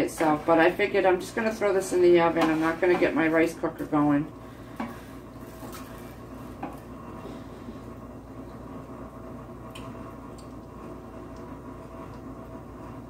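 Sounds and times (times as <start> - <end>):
wet stirring of rice: 0.0 - 4.0, 4.7 - 6.9
low kitchen hum: 0.0 - 13.0.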